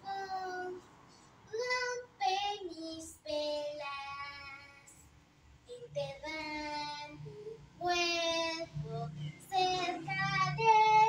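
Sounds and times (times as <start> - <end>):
girl singing: 0.0 - 0.9, 1.5 - 5.1, 5.7 - 11.0.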